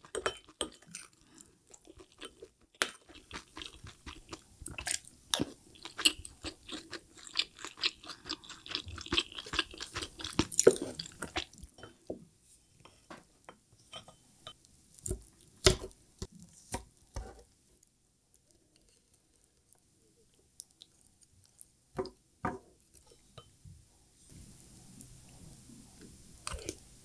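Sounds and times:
chewing and wet mouth sounds: 0.0 - 11.8, 18.3 - 21.8.

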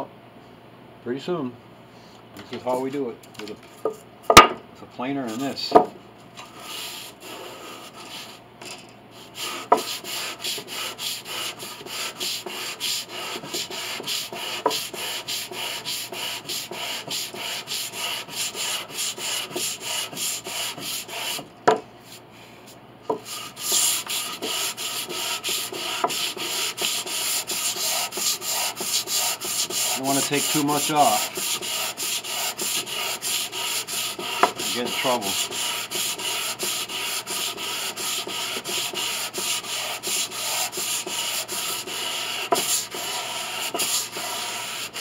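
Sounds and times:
hand tool shaving wood: 9.4 - 21.4, 23.2 - 45.0.

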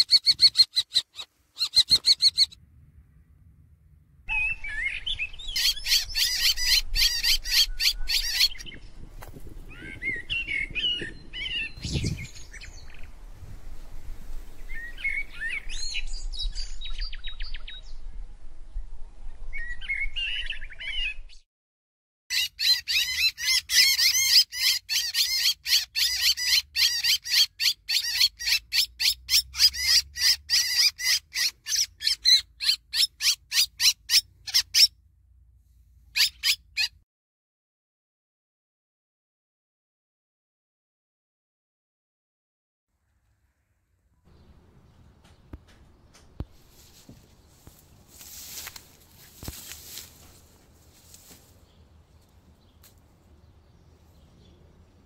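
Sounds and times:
kestrel shrill calls: 0.0 - 2.6, 4.3 - 8.8, 22.3 - 34.9, 36.2 - 36.9.

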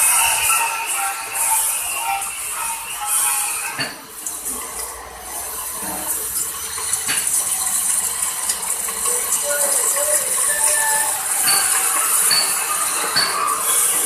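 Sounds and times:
grain mill grinder rattling: 4.3 - 14.0.

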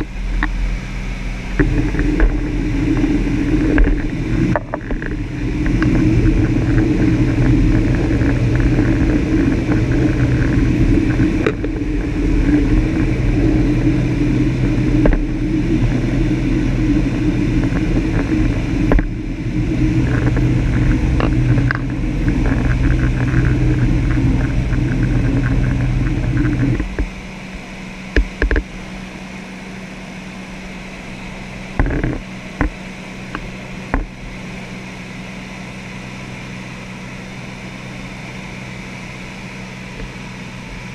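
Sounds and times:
rushing air: 0.0 - 28.1
aircraft engine and propeller droning: 0.0 - 40.9.

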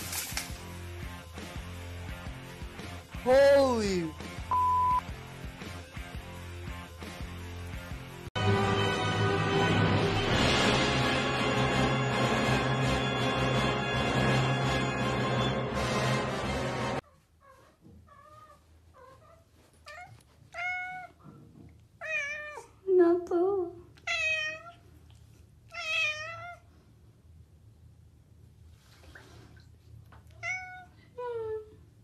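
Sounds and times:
cat meowing: 19.9 - 21.2, 22.0 - 22.7, 24.0 - 24.8, 25.7 - 26.6, 30.3 - 30.9.

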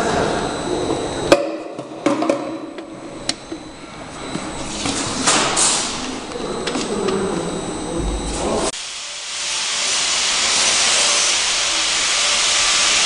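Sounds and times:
faint high whine: 0.0 - 13.0
machine humming: 0.0 - 13.0
rushing hiss: 8.8 - 13.0.

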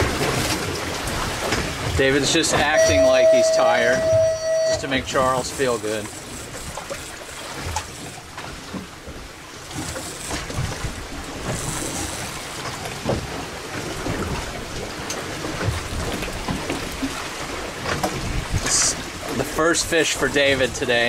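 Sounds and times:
wind on microphone: 0.0 - 5.4, 17.8 - 19.2
water sloshing against hull: 0.0 - 21.0.

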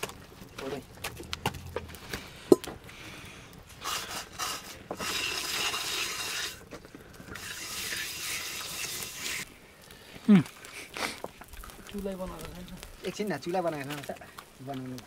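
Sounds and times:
scraping and rubbing: 3.7 - 9.5.

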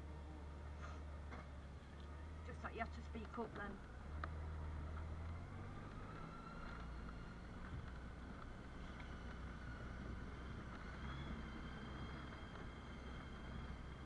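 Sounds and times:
motorcycle engine running: 2.9 - 14.0.

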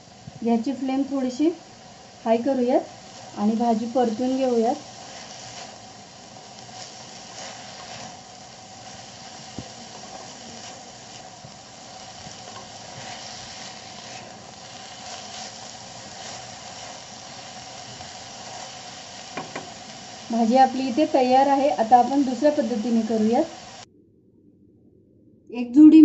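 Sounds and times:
onion greens sizzling in oil: 0.0 - 23.9
wooden spatula scraping: 6.6 - 8.2, 9.4 - 19.8.

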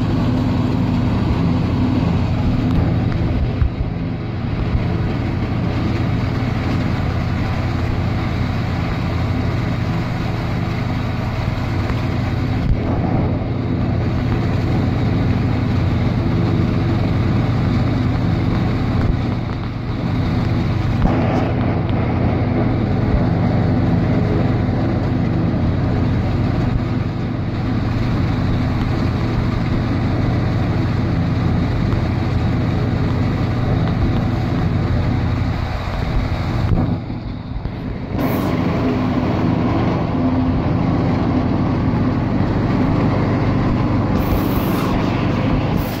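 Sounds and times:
tractor engine under load: 0.0 - 46.0
forage harvester chopping corn: 11.6 - 27.3, 35.9 - 46.0.

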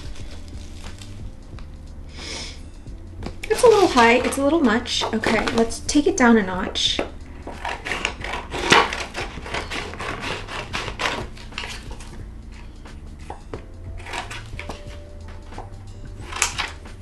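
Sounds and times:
plastic crinkling: 0.0 - 1.2, 3.4 - 5.8, 7.4 - 16.9
scissors snipping plastic: 3.3 - 5.8, 7.0 - 12.2, 13.2 - 17.0.

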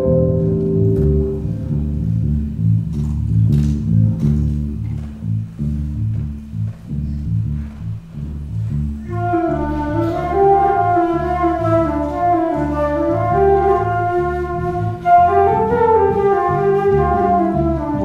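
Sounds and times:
electric bass line: 0.0 - 18.0
flute melody: 9.0 - 18.0.

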